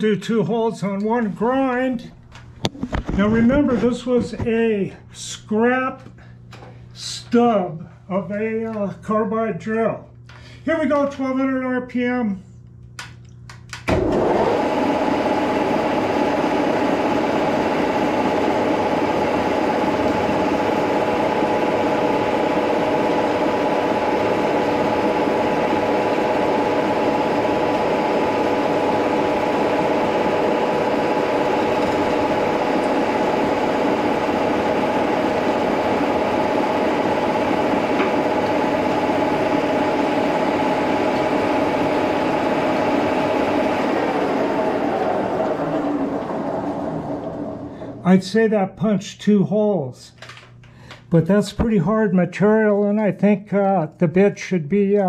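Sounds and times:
milling machine whining: 13.9s - 48.0s.

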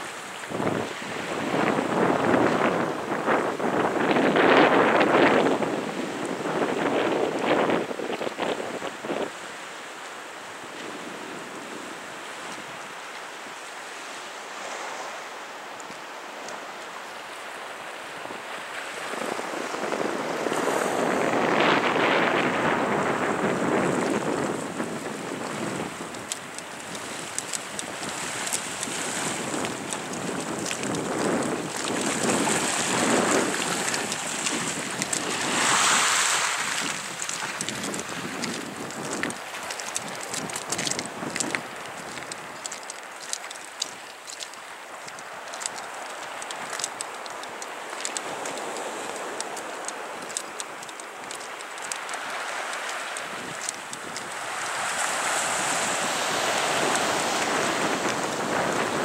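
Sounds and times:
wind on microphone: 0.0s - 9.5s, 17.3s - 59.0s
sea waves washing on rocks: 0.0s - 59.0s
small sharp ticks and crackles: 23.7s - 59.0s
faint clicks: 36.8s - 54.8s.

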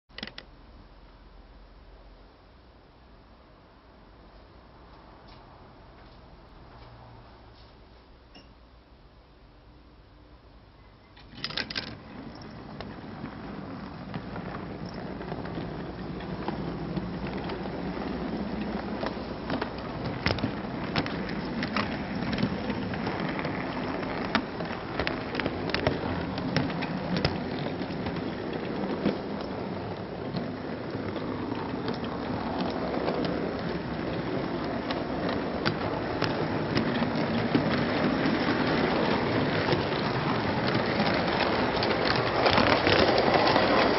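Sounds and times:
model train wheels rolling on track: 11.2s - 43.9s.

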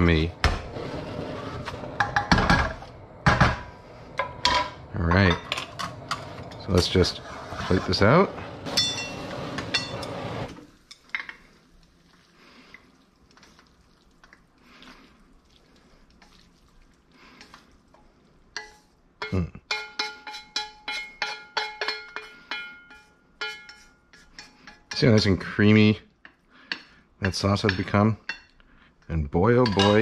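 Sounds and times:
chopsticks tapping metal wok: 18.6s - 25.3s.

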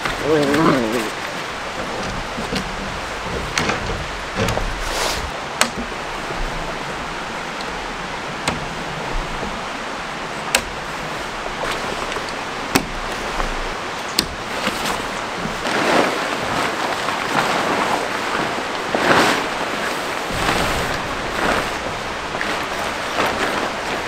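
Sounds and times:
tent poles and clips clicking: 0.0s - 24.0s
wind rushing: 17.9s - 24.0s.

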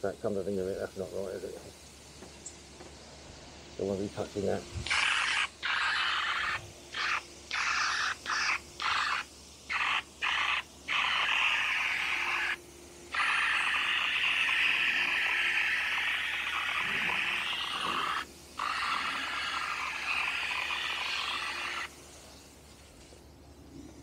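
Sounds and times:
spray gun hissing: 3.4s - 23.2s.

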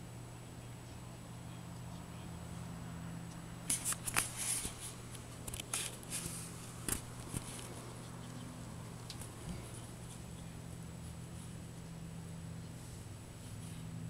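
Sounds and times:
steady low hum: 0.0s - 14.0s
rustles and light clicks: 3.3s - 12.0s.

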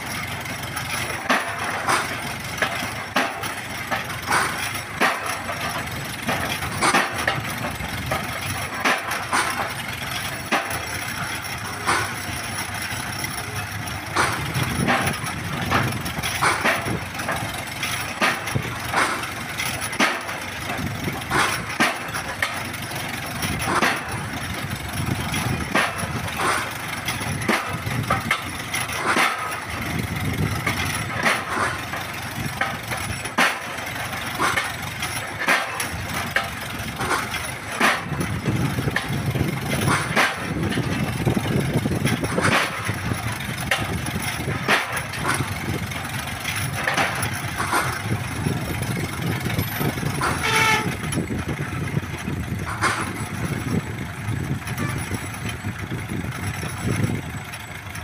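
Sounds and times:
winch engine running: 0.0s - 58.0s.

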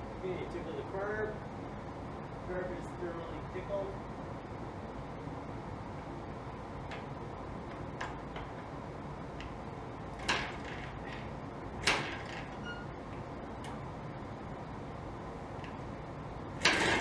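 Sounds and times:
motorcycle kickstart clacks: 16.6s - 17.0s.

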